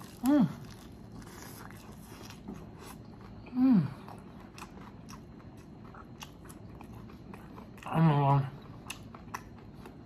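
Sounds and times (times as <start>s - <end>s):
chewing and lip smacks: 4.1s - 8.0s, 8.6s - 10.0s.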